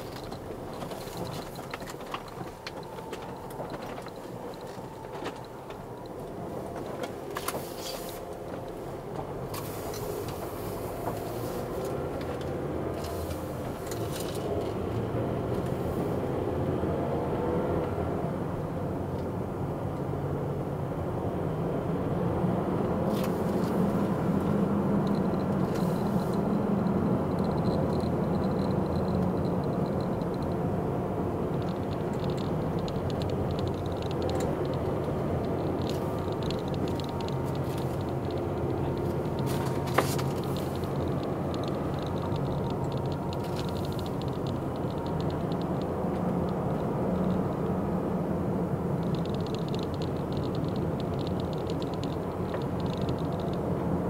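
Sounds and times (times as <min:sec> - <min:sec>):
car engine and tyre hum: 0:00.0 - 0:54.0
faint ticks and rattles: 0:23.5 - 0:30.7, 0:31.5 - 0:47.7, 0:49.0 - 0:53.7.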